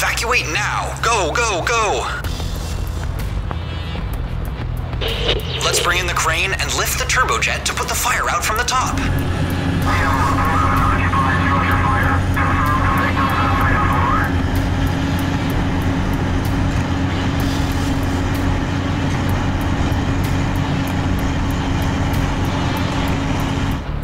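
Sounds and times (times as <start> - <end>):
engine rumble with hiss: 8.9 - 24.0.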